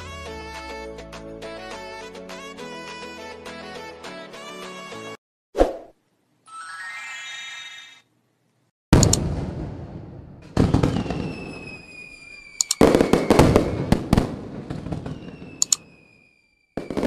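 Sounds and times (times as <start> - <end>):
firework booms: 9.0 - 16.2, 16.8 - 17.0
high descending whistle: 11.2 - 13.9, 15.1 - 16.8.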